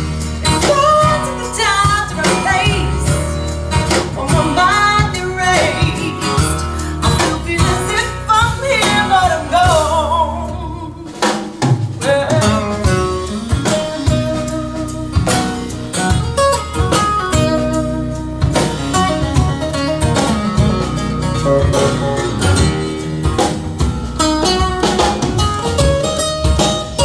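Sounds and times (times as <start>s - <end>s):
guitar over drum beat: 0.0s - 27.0s.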